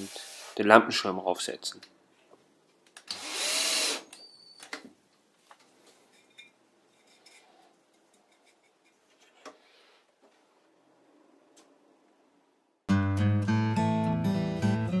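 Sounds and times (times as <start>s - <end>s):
cordless drill driving screw: 3.1s - 4.2s.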